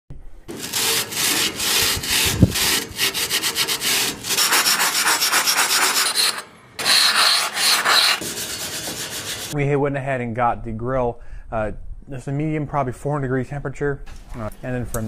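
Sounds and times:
scouring pad scrubbing metal grate: 0.5s - 9.6s.

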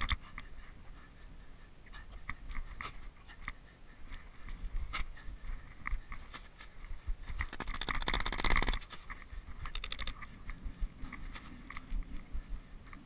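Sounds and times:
rapid rasping clicks: 7.3s - 11.9s.

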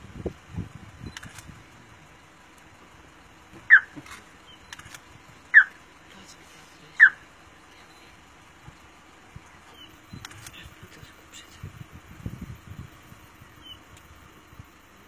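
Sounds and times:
high-pitched animal calls: 5.5s - 5.8s.

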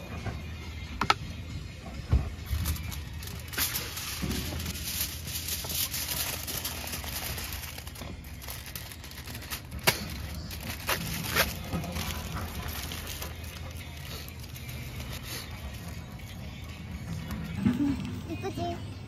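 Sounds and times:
foil crinkling: 2.4s - 17.4s
foil tearing on cutter edge: 3.3s - 13.4s.

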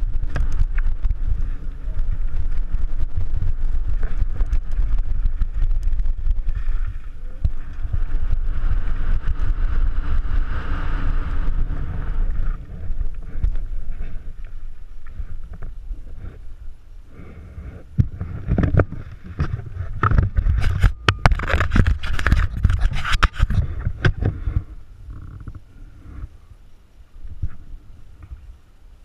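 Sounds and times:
bike knocking and rattling: 0.0s - 16.5s
wind on microphone: 0.0s - 28.7s
tyres on dirt trail: 0.0s - 29.0s.

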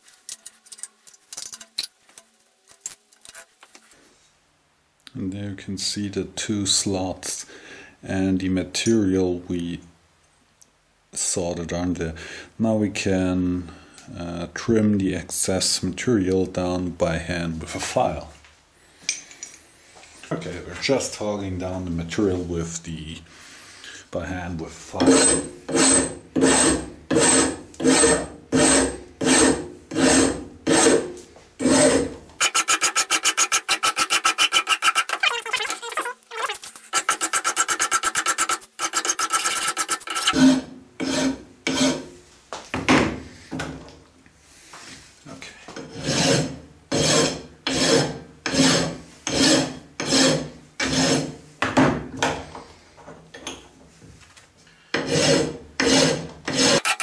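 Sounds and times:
hand file rasping on metal: 25.0s - 42.1s, 45.9s - 51.4s, 55.0s - 57.0s.

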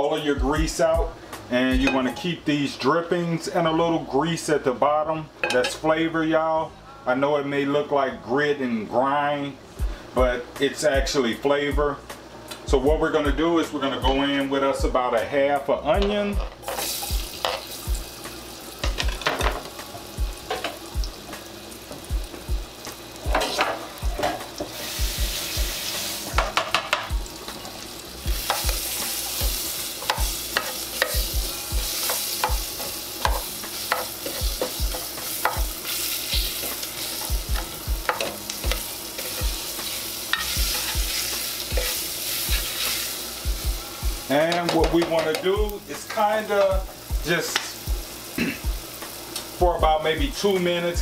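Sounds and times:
onion sizzling in grease: 16.0s - 51.0s
knocks against a pan: 26.4s - 27.2s.

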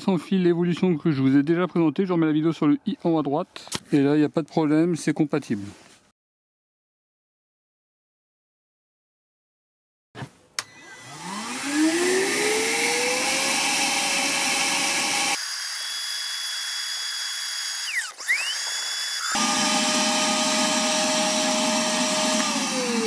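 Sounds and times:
vacuum motor whine: 10.6s - 16.0s, 16.7s - 23.0s.

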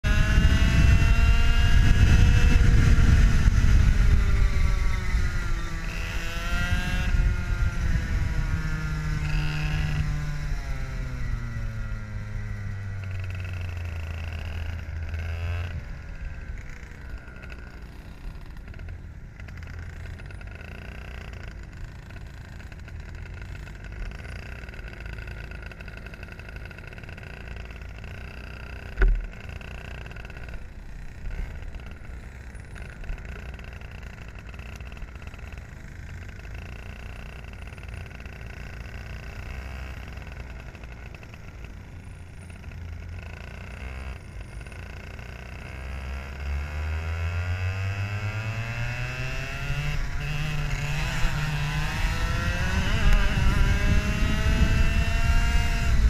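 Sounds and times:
kart engine revving: 0.0s - 56.0s
other karts passing: 39.4s - 56.0s.

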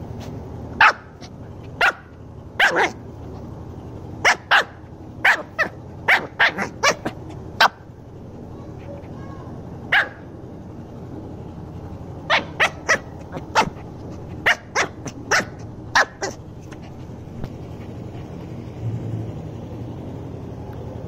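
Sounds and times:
low background hum: 0.0s - 21.0s
puppy barking: 0.8s - 3.0s, 4.2s - 7.9s, 9.9s - 10.4s, 12.3s - 16.8s.

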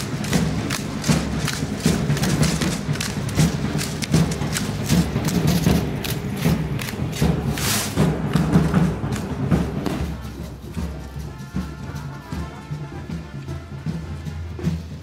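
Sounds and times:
big drum beating: 0.0s - 15.0s
brass playing: 9.8s - 15.0s.

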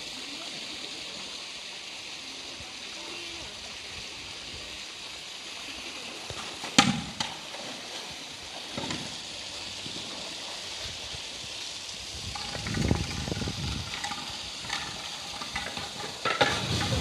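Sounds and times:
steady hiss: 0.0s - 17.0s
water sloshing and streaming: 4.8s - 17.0s
water splashing: 5.6s - 17.0s.

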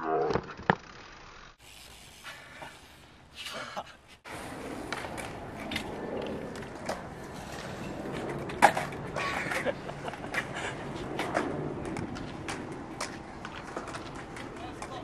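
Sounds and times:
bike tyres rolling on concrete: 0.0s - 15.0s.

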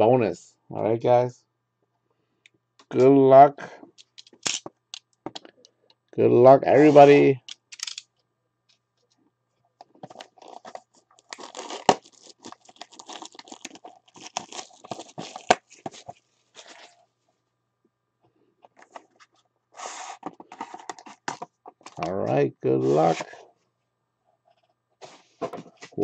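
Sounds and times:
plastic wrap tearing and crinkling: 10.2s - 16.9s.

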